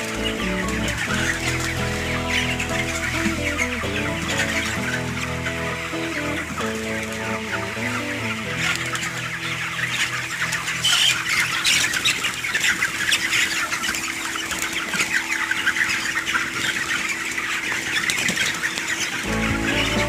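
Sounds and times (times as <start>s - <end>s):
wings flapping: 0.0s - 7.7s
chickens cheeping and clucking: 0.0s - 20.0s.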